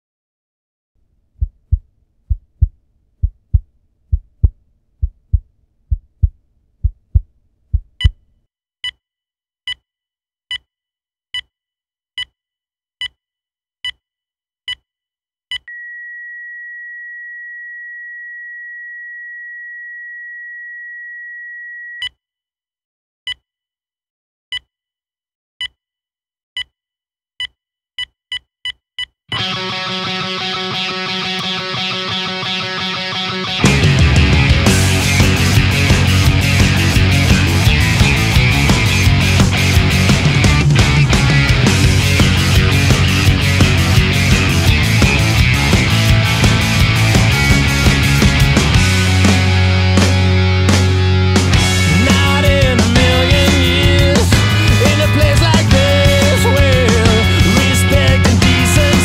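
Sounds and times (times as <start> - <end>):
heartbeat: 1.4 - 8.2
flatline tone: 15.7 - 22.1.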